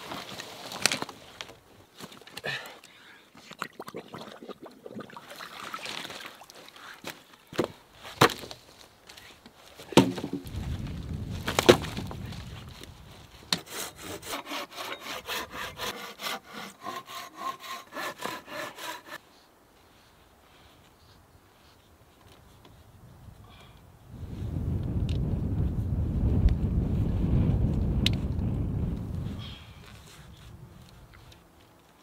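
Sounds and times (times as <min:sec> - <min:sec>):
logs thudding: 0:07.5 - 0:08.7, 0:09.8 - 0:12.5
wood knocking: 0:09.9 - 0:10.5
hand saw cutting wood: 0:13.4 - 0:19.2.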